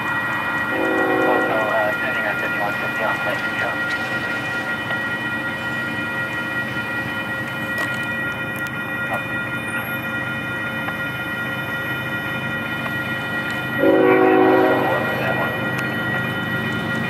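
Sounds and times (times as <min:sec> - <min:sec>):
crossing warning bell ringing: 0:00.0 - 0:17.0
road traffic rumble: 0:00.0 - 0:17.0.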